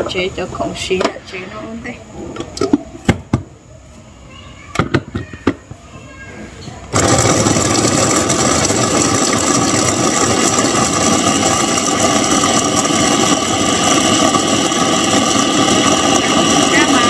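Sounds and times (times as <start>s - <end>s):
machine motor humming: 6.9s - 17.0s.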